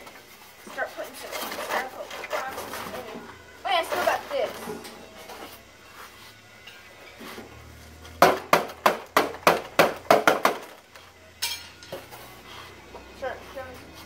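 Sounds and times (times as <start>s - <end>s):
drumstick hitting styrofoam cooler: 8.2s - 10.8s.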